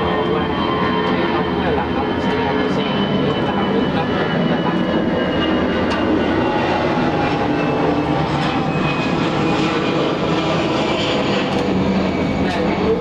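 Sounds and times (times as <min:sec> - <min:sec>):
mechanical drone: 0:00.0 - 0:13.0.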